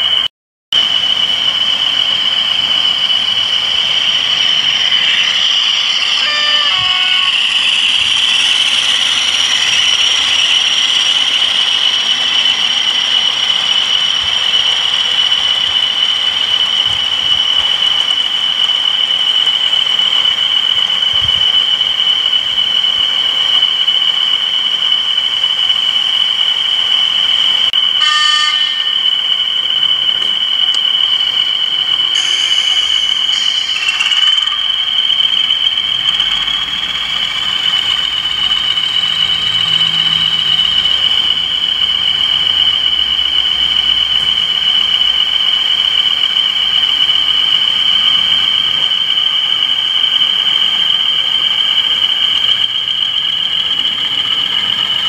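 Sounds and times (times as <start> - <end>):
model locomotive high-pitched whistle: 0.0 - 55.0
short horn toot: 6.2 - 7.4, 28.0 - 28.9.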